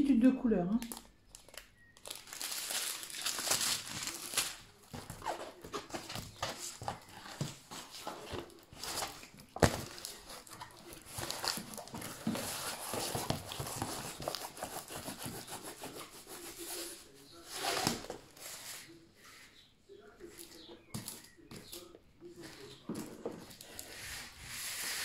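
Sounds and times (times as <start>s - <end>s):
plastic film rustling and crinkling: 0.8s - 19.0s.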